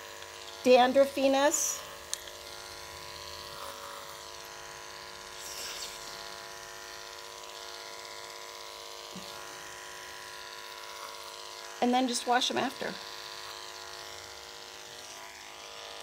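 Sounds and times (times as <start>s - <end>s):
electric dog clippers buzzing: 0.0s - 16.0s.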